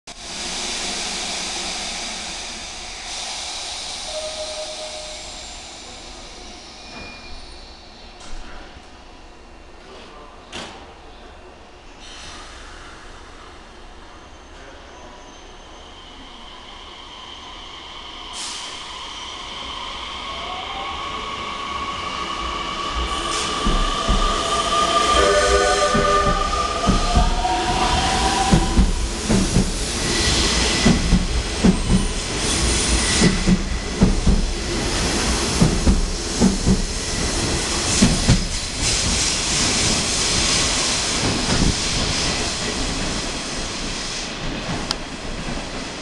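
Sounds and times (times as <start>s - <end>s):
compressed air hissing from train: 0.1s - 8.0s, 12.0s - 13.5s, 16.3s - 20.0s, 21.6s - 44.4s
brief steady tone: 4.1s - 5.4s, 24.2s - 28.7s.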